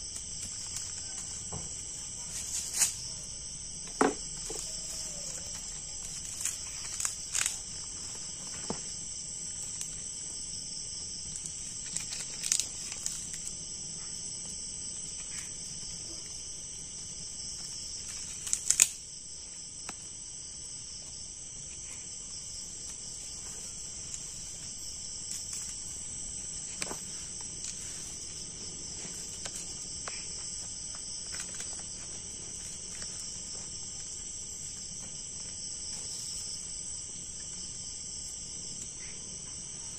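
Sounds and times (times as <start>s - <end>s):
dry bamboo snapping and cracking: 0.0s - 1.6s, 4.0s - 8.7s, 11.3s - 13.5s, 18.0s - 19.0s
crickets and insects chirping: 0.0s - 39.9s.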